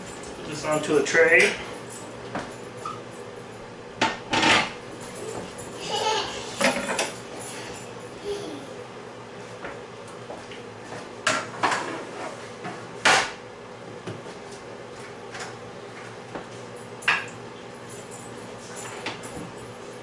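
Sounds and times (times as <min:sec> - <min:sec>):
pans and dishes clanking: 0:04.0 - 0:04.8, 0:06.6 - 0:07.2.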